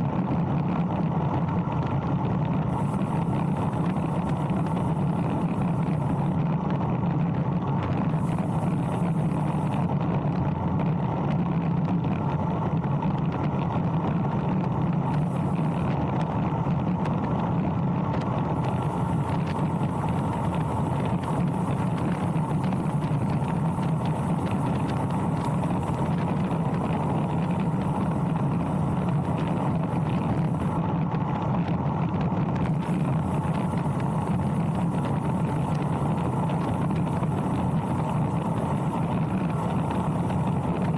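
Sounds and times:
bike tyres humming on asphalt: 0:00.0 - 0:40.9
wind rushing over microphone: 0:00.0 - 0:40.9.

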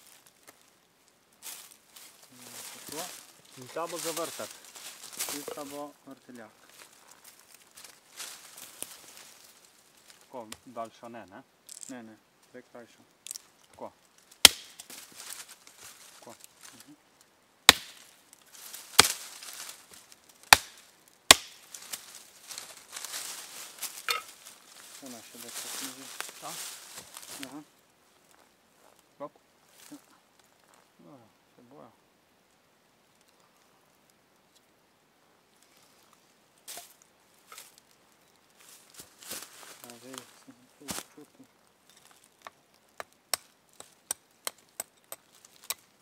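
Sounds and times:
hatchet chopping wood: 0:14.4 - 0:14.9, 0:17.7 - 0:18.1, 0:19.0 - 0:19.2, 0:20.5 - 0:21.7, 0:42.4 - 0:45.8.

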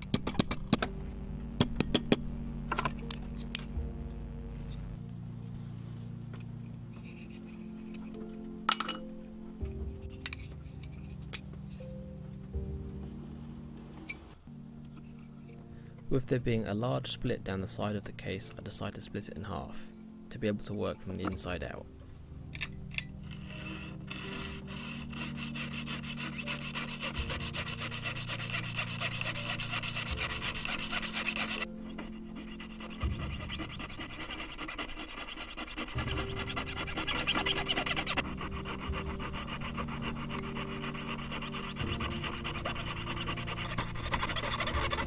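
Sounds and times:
soft background music: 0:00.0 - 0:45.0
piercing saw rasping through metal: 0:23.0 - 0:45.0.

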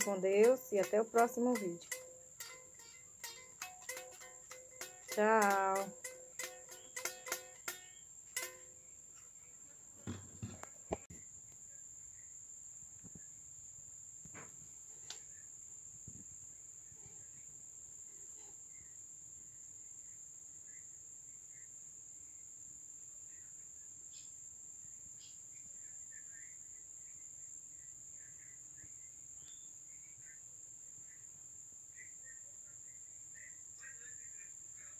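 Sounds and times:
sharp knocks: 0:00.0 - 0:08.7
crickets chirring: 0:00.0 - 0:34.9.

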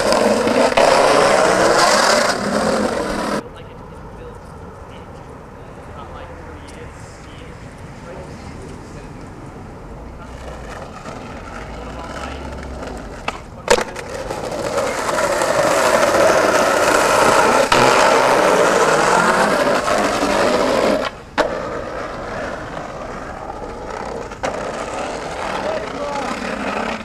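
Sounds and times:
skateboard clacks: 0:00.0 - 0:03.4, 0:10.3 - 0:27.0
skateboard wheels on rough concrete: 0:00.0 - 0:03.4, 0:10.0 - 0:27.0.

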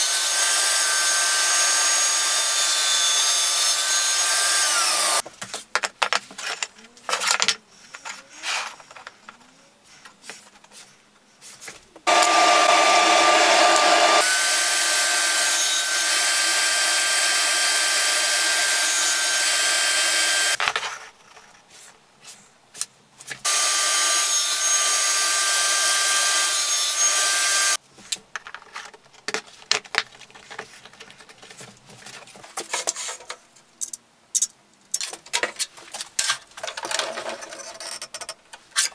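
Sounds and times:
table saw cutting wood: 0:00.0 - 0:05.2, 0:12.1 - 0:20.6, 0:23.4 - 0:27.8
knocks and clicks of wood and tools: 0:28.0 - 0:38.9.

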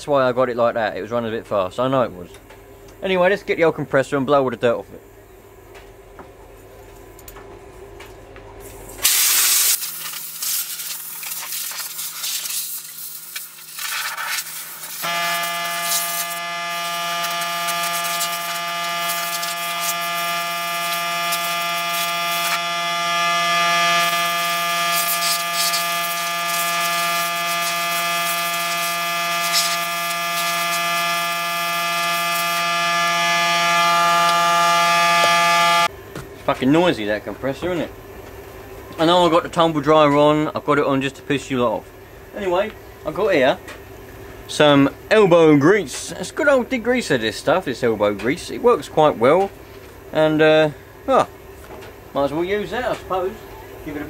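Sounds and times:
air compressor running: 0:09.0 - 0:35.9
compressed air blasting: 0:09.0 - 0:35.9.

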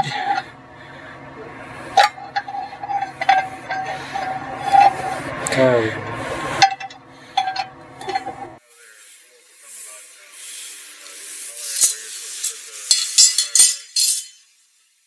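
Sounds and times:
metal tools clinking on workbench: 0:12.9 - 0:14.5.

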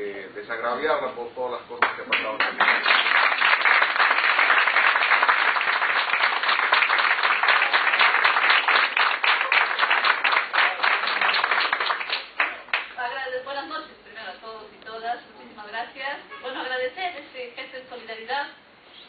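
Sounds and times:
audience applauding: 0:01.8 - 0:13.0.

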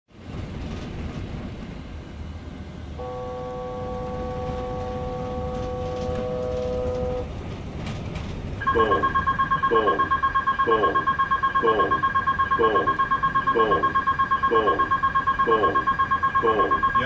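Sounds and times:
low rumble of engine noise: 0:00.1 - 0:17.0
electronic warning tone: 0:03.0 - 0:07.2, 0:08.6 - 0:17.0.

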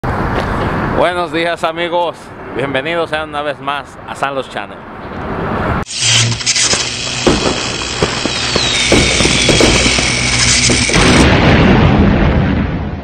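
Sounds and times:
booming hits: 0:06.1 - 0:13.0.

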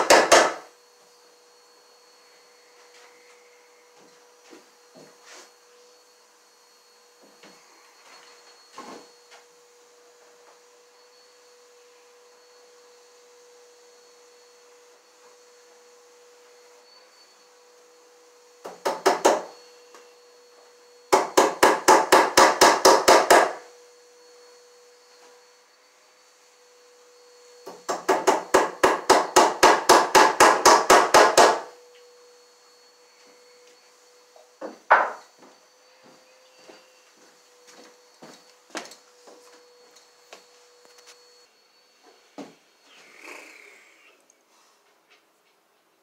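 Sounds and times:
tool knocking on electrical box: 0:00.0 - 0:00.6, 0:18.6 - 0:19.5, 0:21.1 - 0:23.6, 0:27.7 - 0:31.7, 0:34.6 - 0:35.2.

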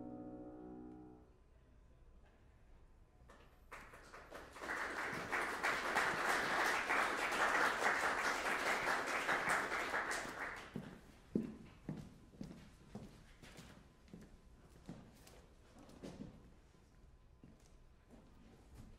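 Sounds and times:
audience applauding: 0:03.7 - 0:10.8
footsteps on stage: 0:10.6 - 0:16.5.

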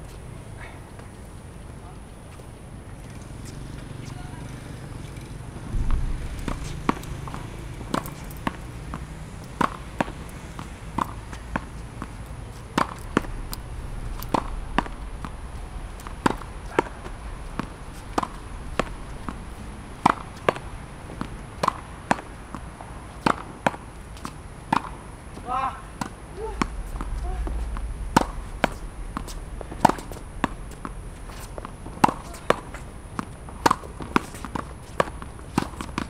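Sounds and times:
tennis ball knocking against wall: 0:05.7 - 0:13.3, 0:28.2 - 0:36.0.

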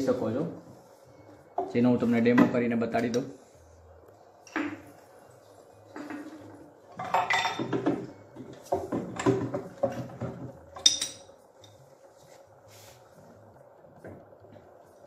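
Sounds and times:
metal and glass ornaments clinking: 0:07.0 - 0:07.7, 0:10.8 - 0:11.8.

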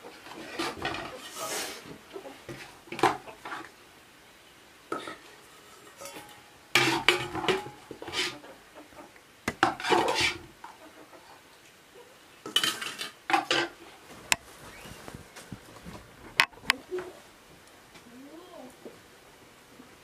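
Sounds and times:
metal ladle scraping pot: 0:00.2 - 0:01.8, 0:04.9 - 0:08.4, 0:09.6 - 0:10.5.

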